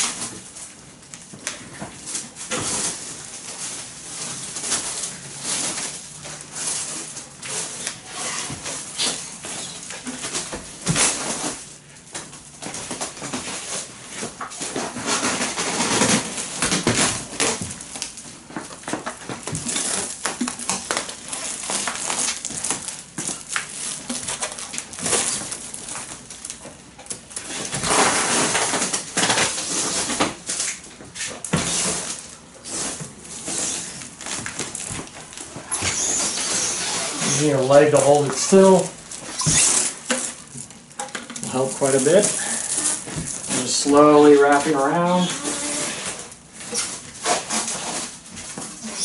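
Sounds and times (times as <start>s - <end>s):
stretch film rustling crackle: 0.0s - 49.0s.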